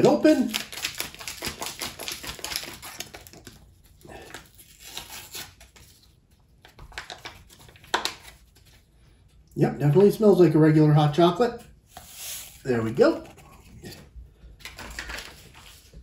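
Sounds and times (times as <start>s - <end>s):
packet crinkling and rustling: 0.0s - 8.8s, 14.6s - 16.0s.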